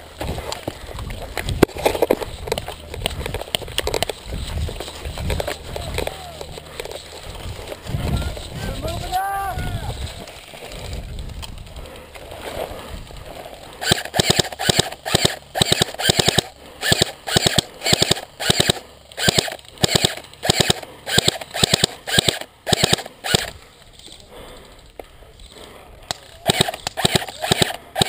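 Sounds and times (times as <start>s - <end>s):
airsoft gun shots: 13.8s - 23.5s, 26.5s - 28.0s.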